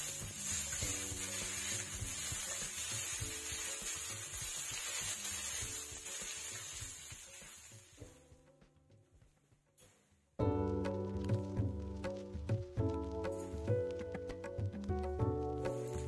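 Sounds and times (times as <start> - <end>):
spatula scraping a wok: 0.0 - 8.0
onions sizzling in oil: 0.0 - 8.4, 13.1 - 16.0
soft background music: 0.0 - 16.0.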